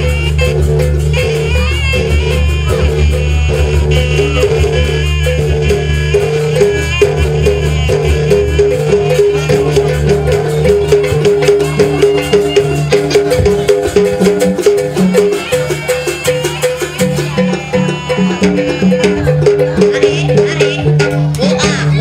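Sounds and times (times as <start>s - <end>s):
hand drum beating: 0.0s - 22.0s
high wavering melody: 0.0s - 22.0s.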